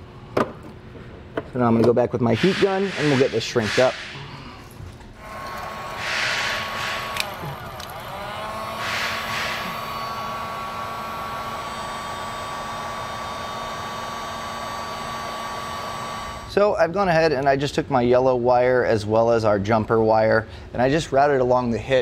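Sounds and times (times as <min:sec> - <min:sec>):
heat gun fan whine: 0:02.3 - 0:16.8
rush of hot air: 0:06.0 - 0:07.3.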